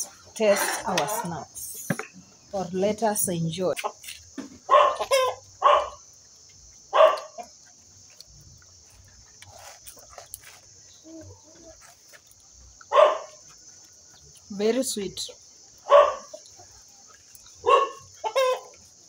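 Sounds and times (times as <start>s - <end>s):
dog barking: 4.7s - 6.0s, 6.9s - 7.5s, 12.9s - 13.4s, 15.8s - 16.4s, 17.6s - 18.6s.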